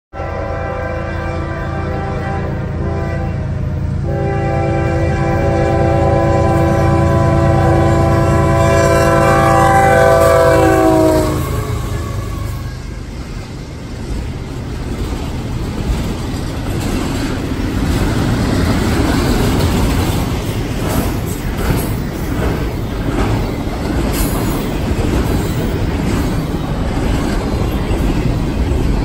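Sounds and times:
locomotive air horn chord: 0.1 - 13.1
train wheels rolling on rails: 2.5 - 29.0.

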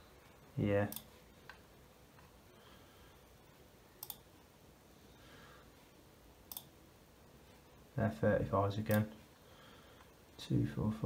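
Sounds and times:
computer mouse clicking: 4.0 - 4.3, 6.5 - 6.8.

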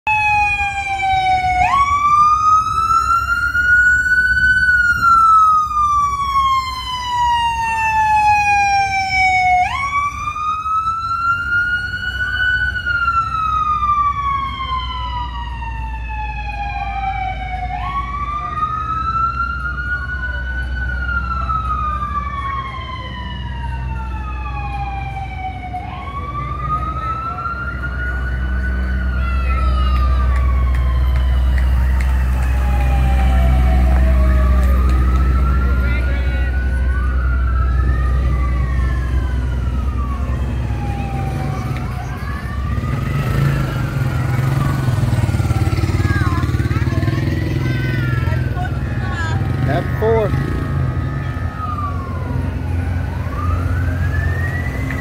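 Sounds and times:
low engine rumble: 0.1 - 43.1
second siren sweeping: 0.1 - 55.0
siren wailing: 0.1 - 55.0.

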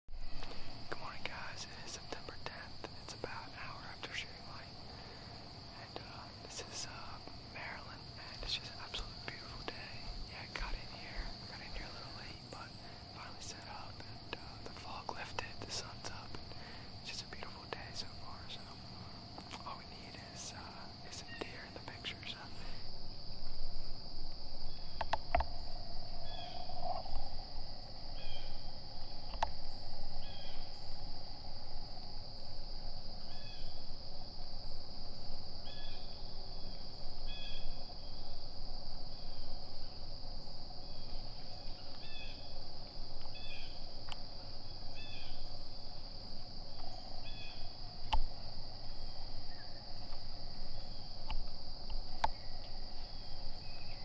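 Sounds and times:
insects droning: 0.1 - 54.0
sharp clicks: 25.0 - 25.5.

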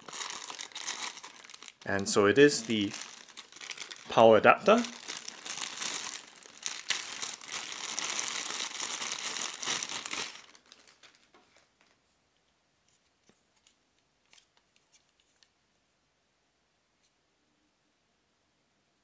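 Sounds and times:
plastic bag crinkling: 0.0 - 11.9.

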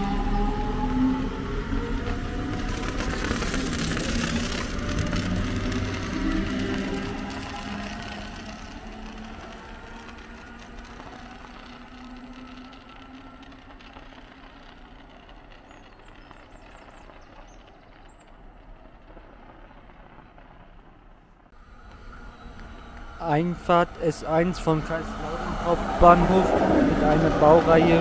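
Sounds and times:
electric train motor hum: 0.0 - 15.1, 21.6 - 28.0
train rolling noise: 0.0 - 28.0.

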